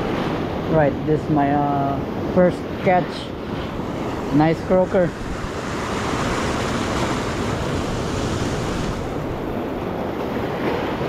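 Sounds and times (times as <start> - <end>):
wind buffeting microphone: 0.0 - 11.0
surf breaking over rocks: 3.4 - 11.0.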